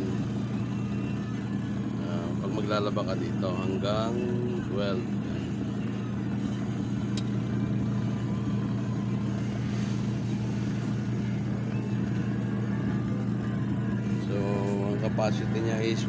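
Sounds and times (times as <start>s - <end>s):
washing machine motor humming: 0.0s - 16.0s.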